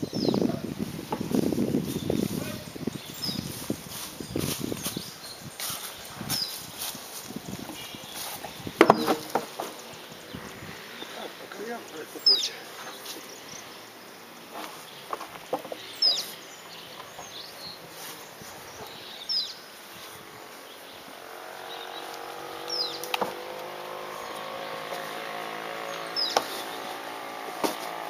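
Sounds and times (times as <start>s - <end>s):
bird calling: 1.9s - 27.9s
knocks of tires handled: 8.4s - 9.9s, 23.1s - 23.6s, 26.2s - 26.8s, 27.5s - 28.0s.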